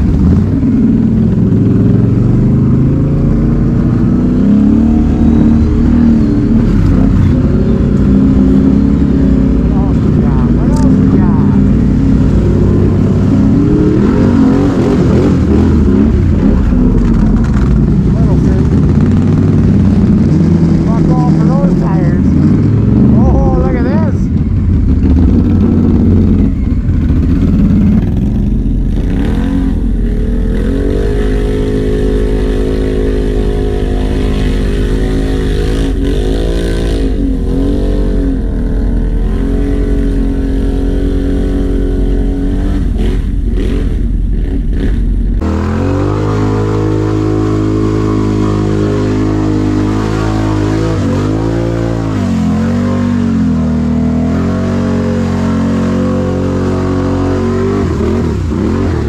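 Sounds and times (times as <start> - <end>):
quad bike engine revving: 0.0 - 59.0.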